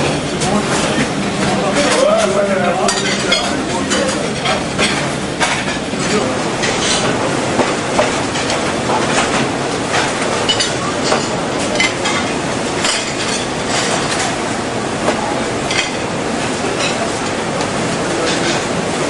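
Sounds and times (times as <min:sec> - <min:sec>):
dishwasher mechanical rumble: 0:00.0 - 0:19.0
china plates clinking: 0:01.8 - 0:07.1.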